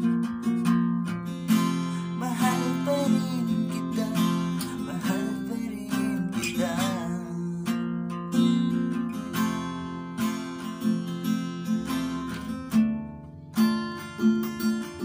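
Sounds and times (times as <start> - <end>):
acoustic guitar strumming: 0.0 - 15.0
man singing: 1.5 - 7.8.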